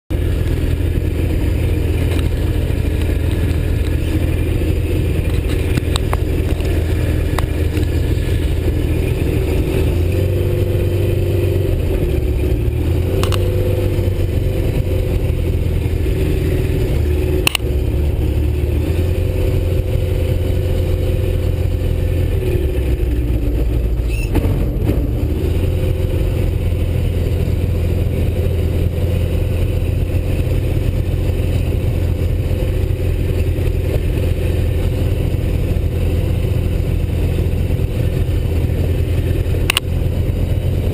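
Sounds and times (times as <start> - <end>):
aircraft engine and propeller running: 0.1 - 40.9
sharp click: 13.2 - 13.5, 17.4 - 17.7, 39.7 - 39.9.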